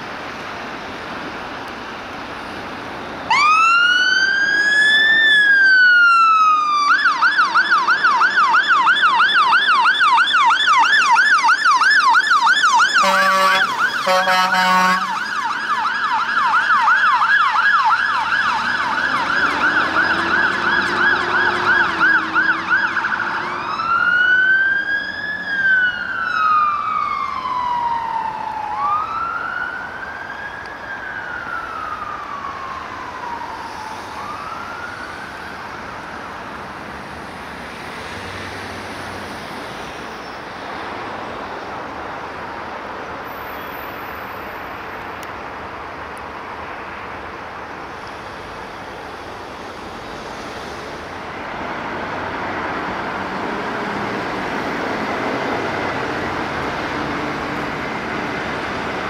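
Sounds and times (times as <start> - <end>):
fire engine siren wailing and yelping: 3.2 - 38.2, 46.9 - 59.0
air horn blasts: 13.0 - 15.3.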